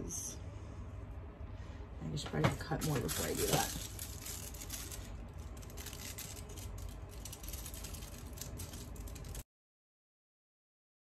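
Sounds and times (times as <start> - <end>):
low steady hum: 0.0 - 9.4
cellophane crinkling: 2.3 - 9.4.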